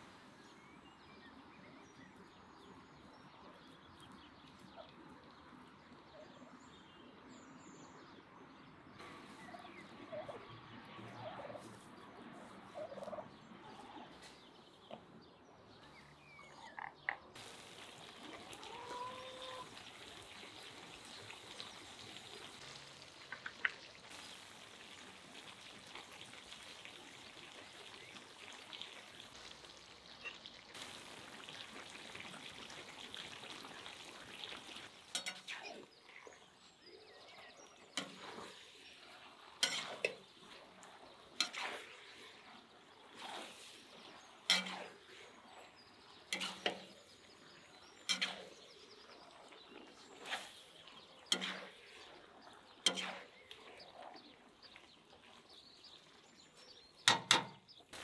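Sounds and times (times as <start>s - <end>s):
faint steady background noise: 0.0s - 58.0s
poultry calling: 18.0s - 20.2s.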